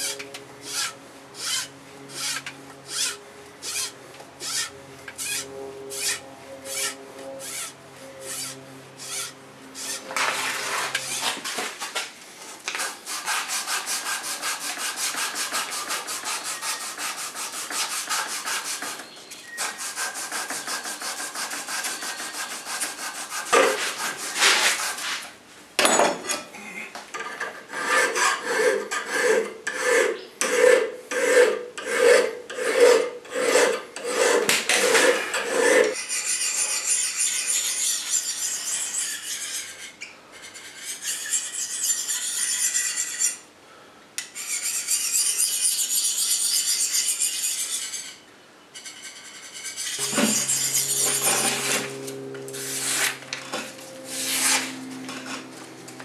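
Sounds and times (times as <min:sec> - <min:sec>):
hand file rasping on steel blade: 0:00.0 - 0:11.6, 0:12.8 - 0:25.2, 0:27.7 - 0:43.4, 0:44.4 - 0:48.2, 0:48.8 - 0:55.8
blade ringing: 0:50.0 - 0:56.0.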